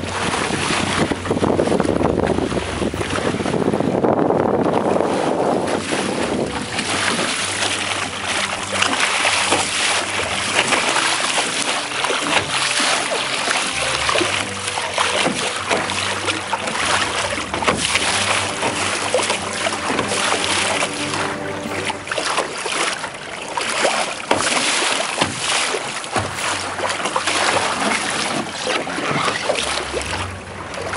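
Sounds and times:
wind on microphone: 0.0s - 23.4s
faint background music: 0.0s - 24.1s
water splashing against boat hull: 0.0s - 30.9s.

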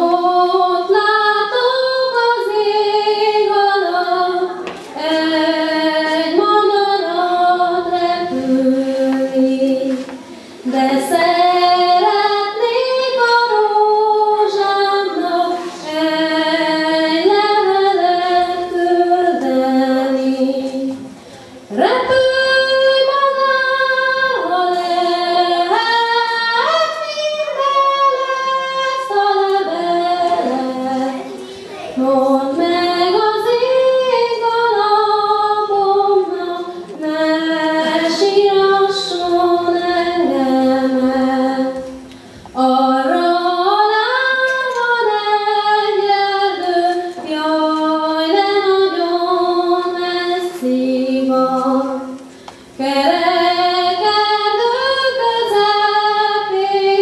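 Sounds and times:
woman singing into a microphone: 0.0s - 57.0s.

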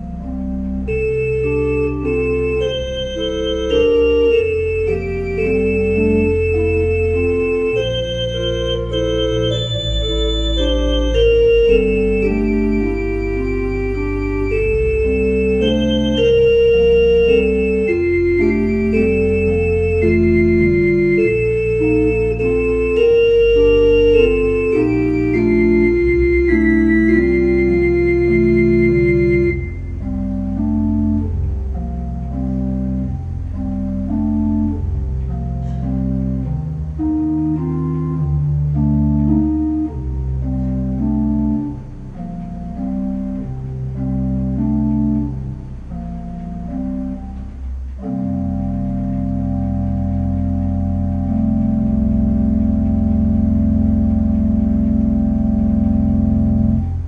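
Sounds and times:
church organ playing: 0.0s - 57.0s.

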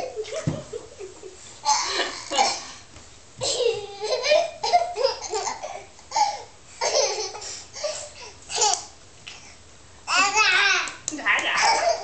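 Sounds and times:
child laughing: 3.4s - 8.8s.

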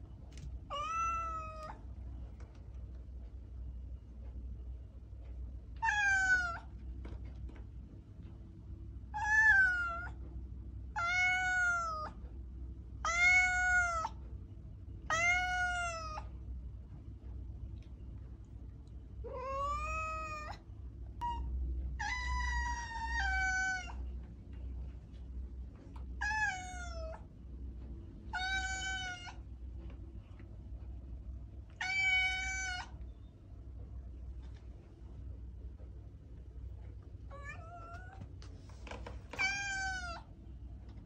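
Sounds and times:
cat meowing: 0.7s - 1.8s, 5.8s - 6.7s, 9.1s - 10.2s, 11.0s - 12.2s, 13.0s - 14.2s, 15.1s - 16.3s, 19.2s - 20.6s, 21.2s - 24.0s, 26.2s - 27.2s, 28.3s - 29.4s, 31.8s - 33.0s, 37.3s - 38.3s, 39.3s - 40.3s.

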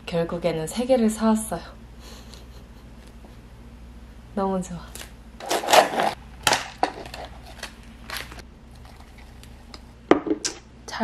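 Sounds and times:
paper container crinkling: 5.4s - 9.6s
bowl knocking on tabletop: 10.1s - 10.5s.

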